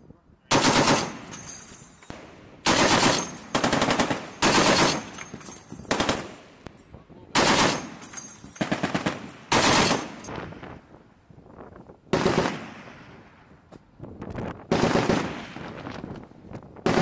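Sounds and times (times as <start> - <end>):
machine gun firing bursts: 0.5 - 1.4, 2.1 - 6.5, 7.4 - 10.3, 12.1 - 12.6, 14.7 - 15.4.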